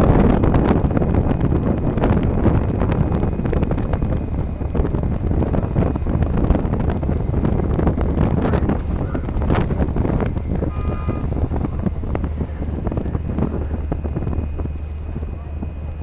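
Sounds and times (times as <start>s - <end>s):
ferry engine rumble: 0.0s - 16.0s
wind buffeting microphone: 0.0s - 16.0s.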